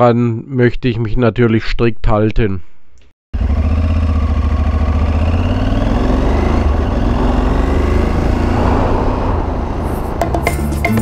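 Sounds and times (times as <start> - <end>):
motorcycle engine running: 3.4 - 11.0.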